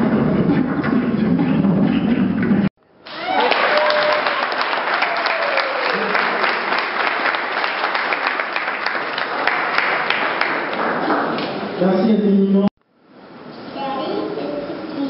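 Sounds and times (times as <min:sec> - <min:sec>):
audience applauding: 0:03.0 - 0:11.6.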